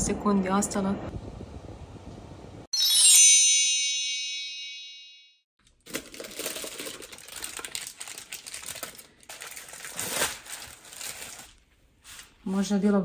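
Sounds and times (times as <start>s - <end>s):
paper and plastic wrap crinkling: 5.7s - 12.5s.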